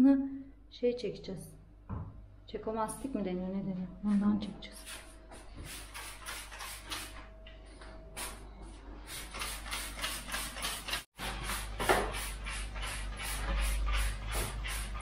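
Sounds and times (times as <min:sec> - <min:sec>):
spray bottle squirting: 0:05.7 - 0:07.2, 0:09.1 - 0:15.0.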